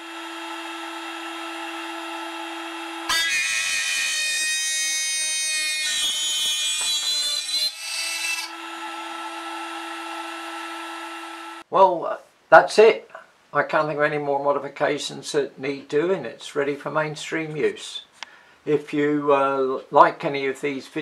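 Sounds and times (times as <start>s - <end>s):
drill bit cutting aluminium: 3.0s - 11.6s.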